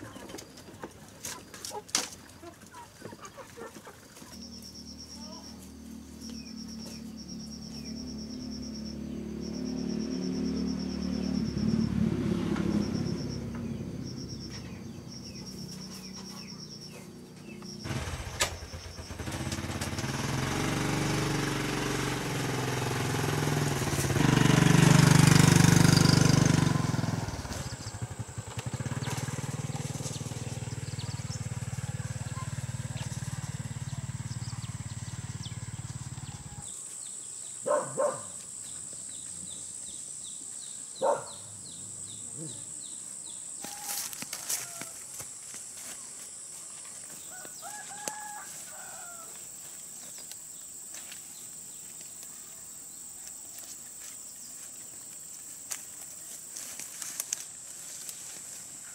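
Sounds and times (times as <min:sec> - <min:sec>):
motorbike engine passing by: 0:02.7 - 0:36.7
short insect calls: 0:04.2 - 0:19.4, 0:26.8 - 0:58.9
high insect drone: 0:04.4 - 0:20.4, 0:25.5 - 0:58.9.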